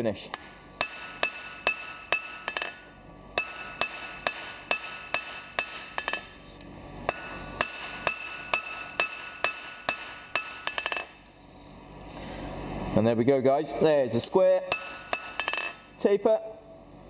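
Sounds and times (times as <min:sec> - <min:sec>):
hammer striking hot steel: 0:00.3 - 0:06.4, 0:07.0 - 0:11.2, 0:14.7 - 0:15.9
anvil ringing: 0:00.8 - 0:06.3, 0:07.1 - 0:11.2, 0:14.7 - 0:15.9.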